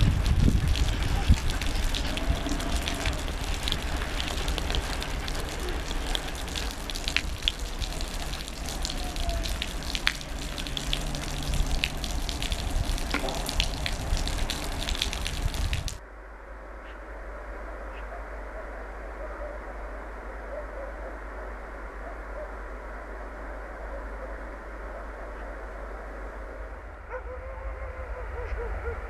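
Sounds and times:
steady rushing noise: 0.0 - 16.4.

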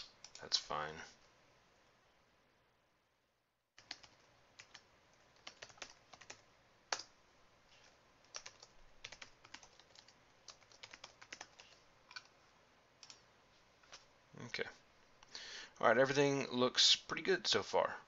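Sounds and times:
typing on computer keyboard: 3.8 - 4.8, 5.4 - 7.1, 8.3 - 12.3, 13.0 - 13.2.

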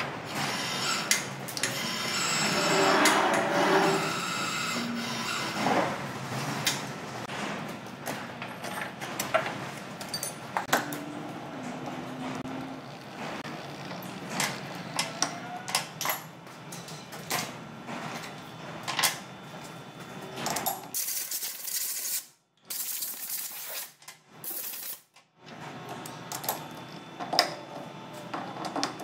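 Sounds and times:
metal tools clinking: 10.0 - 10.6.

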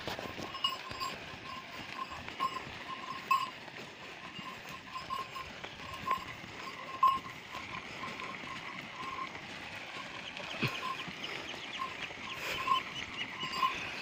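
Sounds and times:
cart rattling: 0.0 - 14.0
hoofbeats: 0.0 - 14.0
short ringing tone: 0.4 - 3.6, 4.3 - 9.3, 11.7 - 14.0.

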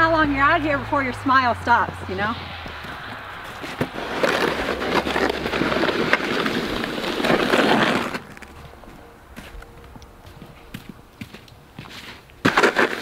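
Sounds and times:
snow shovel scraping pavement: 2.2 - 9.6, 11.2 - 13.0.

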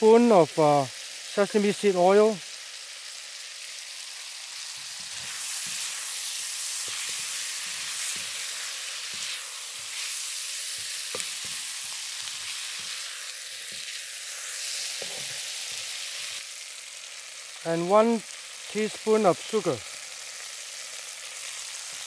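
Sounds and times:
vegetables sizzling in a wok: 0.0 - 22.0
spatula scraping the pan: 4.6 - 16.0.

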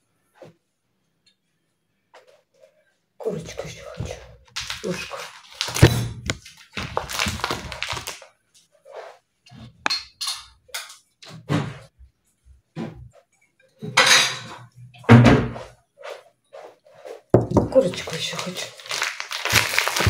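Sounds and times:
plastic packaging crinkling: 4.5 - 8.3, 17.8 - 20.0
dishes clattering: 9.8 - 11.1, 13.8 - 15.6
scissors cutting plastic: 17.8 - 20.0.

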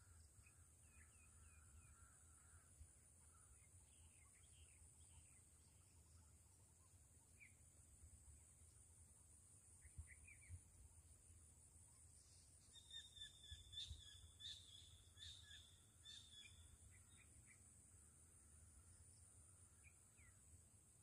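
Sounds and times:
insect drone: 0.0 - 21.0
bird chirps: 12.6 - 17.6.

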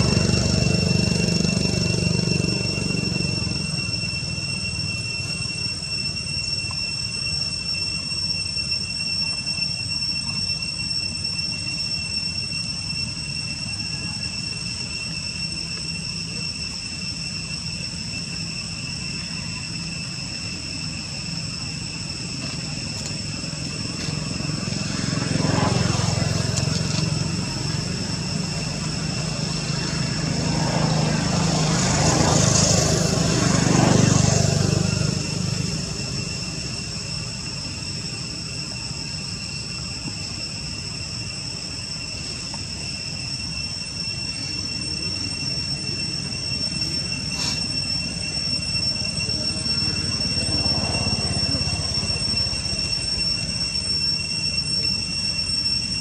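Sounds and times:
passing vehicle engine rumble: 0.0 - 6.2, 15.8 - 56.0
high-pitched drone: 0.0 - 56.0.

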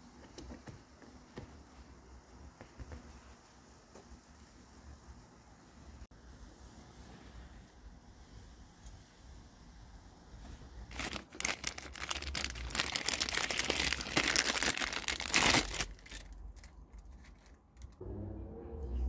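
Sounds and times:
plastic bag crinkling: 10.9 - 18.0.

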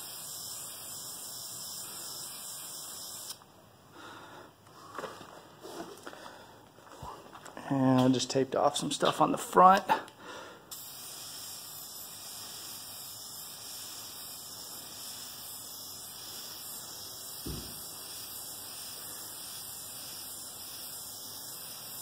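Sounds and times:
spray paint can hissing: 0.0 - 3.4, 10.7 - 22.0
low thump: 17.5 - 17.8.

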